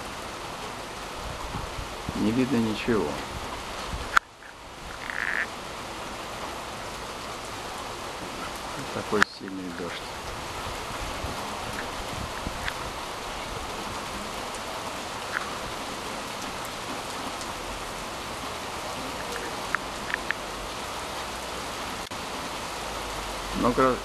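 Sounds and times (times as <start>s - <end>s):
heavy rain hissing: 0.0s - 24.0s
sharp drip ticks: 4.1s - 5.5s, 15.2s - 15.6s, 19.2s - 20.5s.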